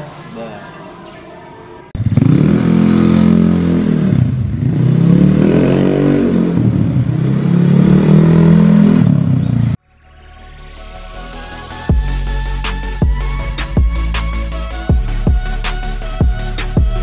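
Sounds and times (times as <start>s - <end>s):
scooter engine revving: 2.0s - 9.8s.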